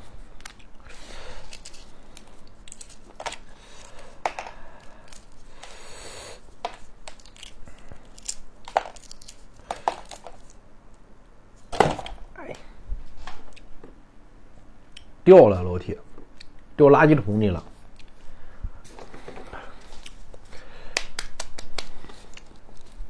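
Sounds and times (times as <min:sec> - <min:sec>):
food crinkling and rustling: 0:00.2 - 0:05.8, 0:06.4 - 0:10.6, 0:17.7 - 0:20.5, 0:21.8 - 0:23.0.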